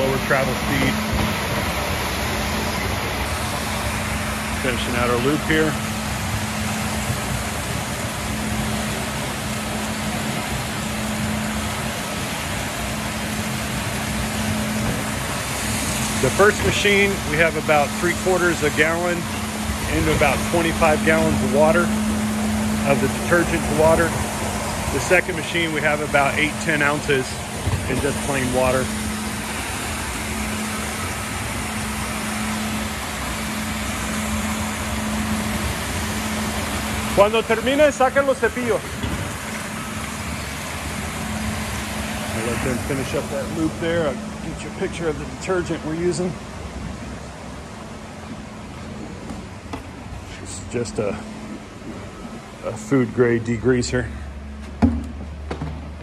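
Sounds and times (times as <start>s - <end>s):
floor scrubber motors droning: 0.0s - 53.4s.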